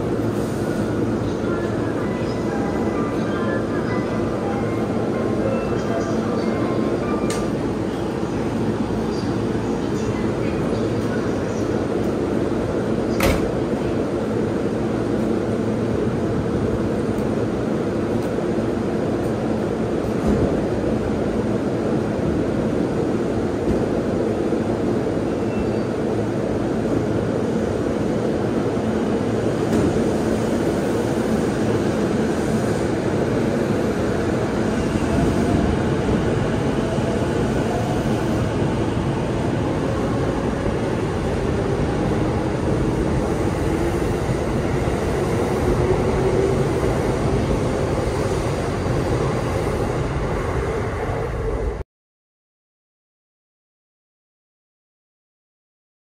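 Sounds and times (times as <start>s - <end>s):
electric train humming: 26.0s - 51.8s.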